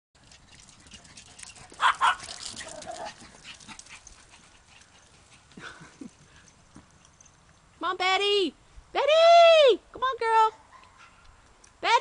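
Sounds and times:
dog barking: 0:01.8 - 0:02.2.

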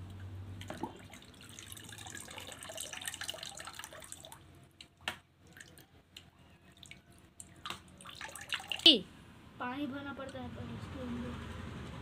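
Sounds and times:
water trickling in a bucket: 0:00.0 - 0:09.0.

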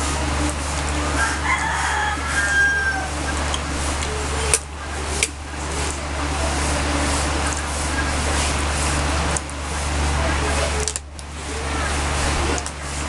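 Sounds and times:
low hum and hiss: 0:00.0 - 0:13.0
rooster crowing: 0:01.1 - 0:03.3.

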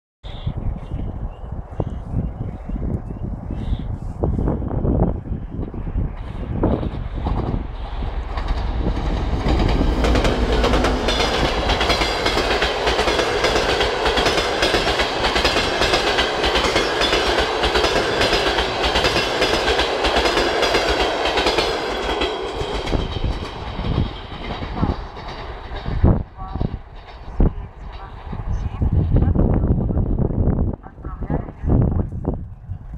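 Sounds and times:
diesel locomotive engine rumble: 0:00.2 - 0:32.9
train wheels clattering over rail joints: 0:05.6 - 0:28.5.

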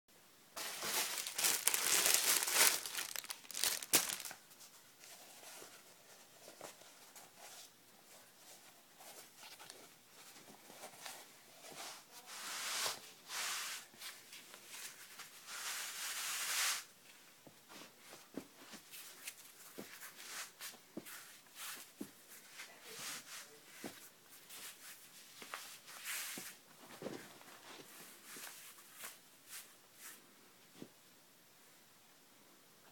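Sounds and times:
crinkling bursts: 0:00.8 - 0:04.4.

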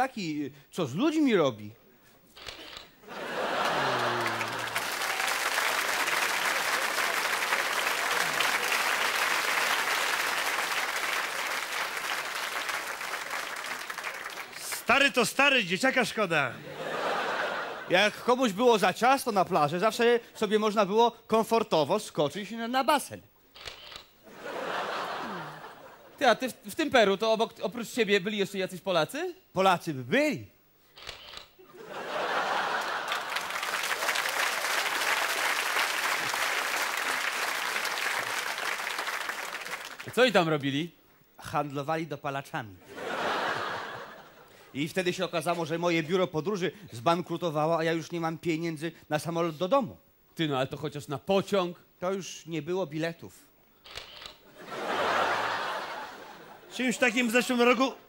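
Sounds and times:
audience applauding: 0:03.1 - 0:15.2, 0:32.1 - 0:40.2.

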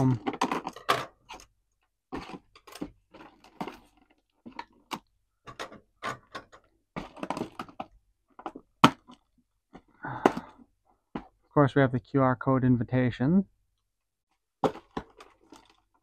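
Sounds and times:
packaging rustling: 0:02.1 - 0:05.1, 0:14.6 - 0:16.0.

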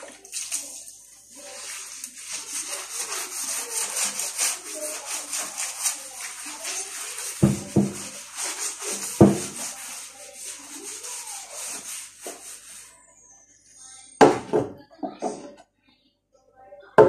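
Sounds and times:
scrubbing on ceramic tiles: 0:00.0 - 0:13.0.

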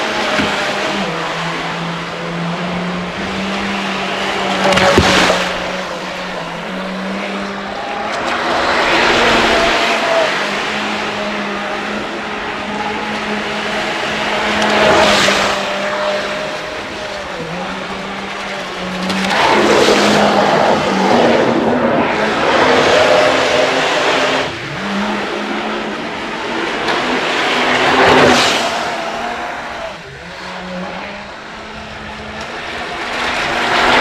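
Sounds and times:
electric boat motor whining: 0:00.0 - 0:34.0
rushing water: 0:00.0 - 0:34.0.

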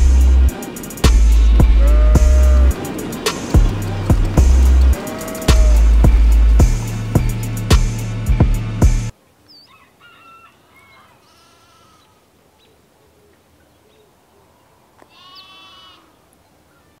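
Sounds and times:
sheep bleating: 0:01.4 - 0:06.9, 0:11.2 - 0:12.2, 0:15.1 - 0:16.1.

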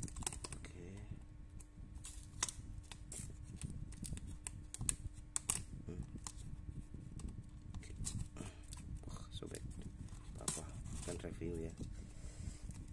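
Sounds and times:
small clicks crinkles and scrapes: 0:00.0 - 0:08.8.

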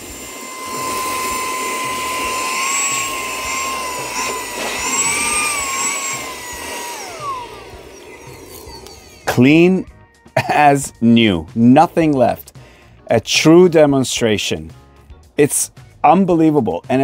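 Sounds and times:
handheld vacuum whining: 0:00.0 - 0:10.5.

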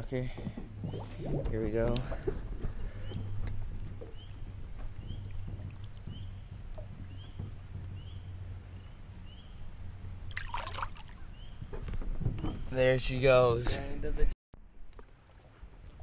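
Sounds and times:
water sloshing: 0:00.0 - 0:11.6
low wind rumble: 0:00.0 - 0:14.9
fish splashing: 0:00.4 - 0:07.1, 0:10.3 - 0:11.3.

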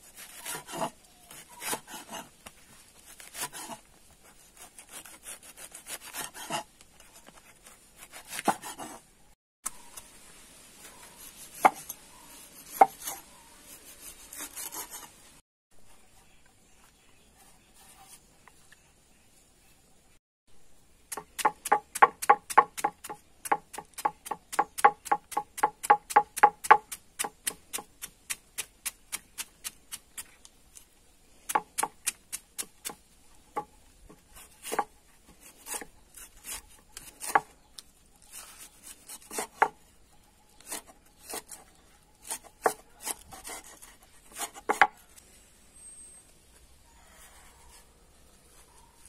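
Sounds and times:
cleaver chopping on wooden board: 0:21.1 - 0:29.8.

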